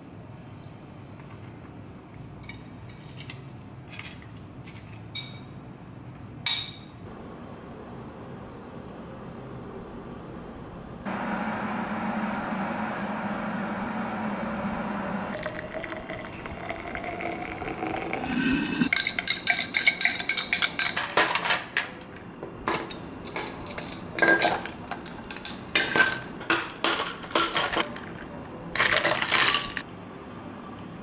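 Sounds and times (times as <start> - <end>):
liquid pouring into a glass: 15.3 - 19.0
ice cubes clinking in a glass: 28.8 - 29.8.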